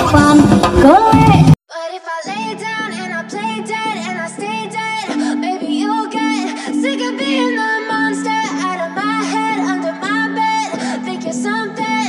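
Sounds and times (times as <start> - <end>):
wavering lead melody: 4.6 - 11.6.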